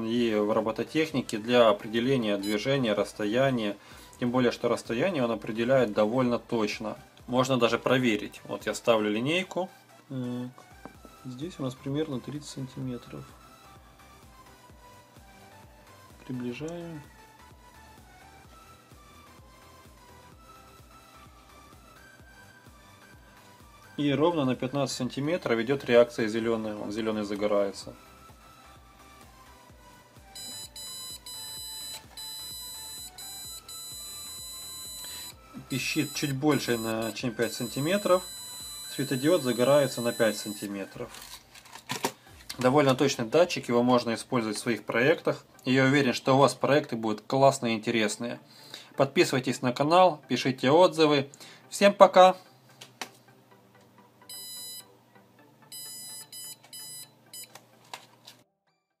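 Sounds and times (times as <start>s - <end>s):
buzzer beeping high tone: 30.4s - 40.7s, 54.3s - 54.9s, 55.7s - 57.5s.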